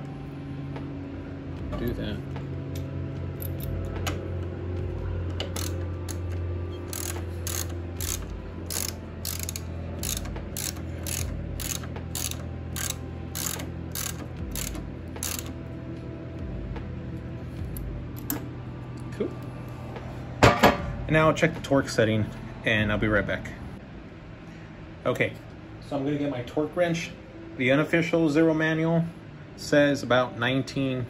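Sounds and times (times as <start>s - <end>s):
ratchet wrench clicking: 5.4s - 15.6s.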